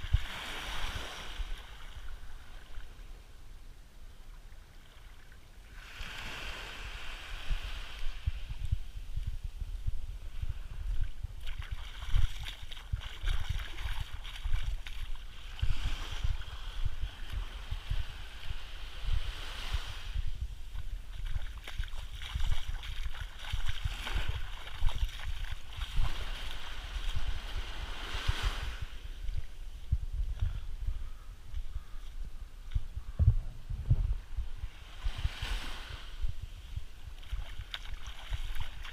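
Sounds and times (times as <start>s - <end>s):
small waves lapping on sand: 0.0s - 3.4s, 4.1s - 8.8s, 10.2s - 29.9s, 34.6s - 38.9s
wind rumble on microphone: 0.0s - 38.9s.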